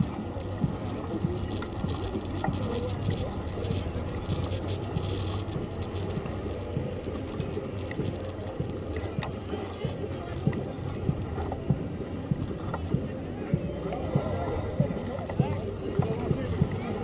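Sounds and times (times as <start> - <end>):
bicycle rolling over pavement: 0.0 - 17.0.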